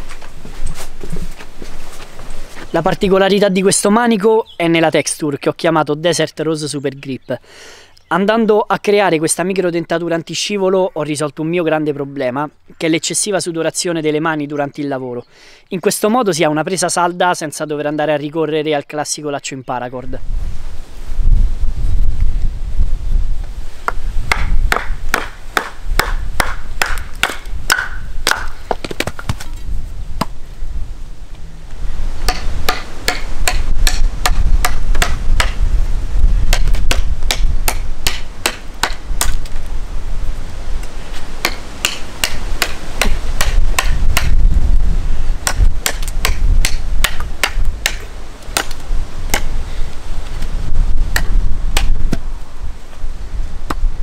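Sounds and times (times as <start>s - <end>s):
knife chopping into wood: 23.9s - 29.5s, 32.3s - 35.6s, 36.5s - 39.5s, 41.4s - 44.4s, 45.4s - 48.0s, 48.6s - 49.5s.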